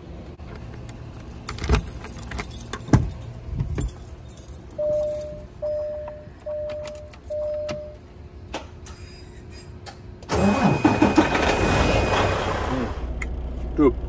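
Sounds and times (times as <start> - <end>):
warning chime beeps: 4.8 - 8.0
diesel engine starting and idling: 4.8 - 14.0.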